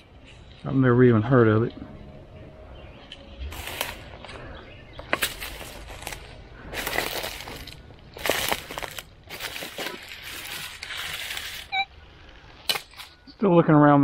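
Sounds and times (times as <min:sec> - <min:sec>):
footsteps crunching dry leaves: 0:03.4 - 0:11.7
sticks snapping underfoot: 0:05.0 - 0:10.9.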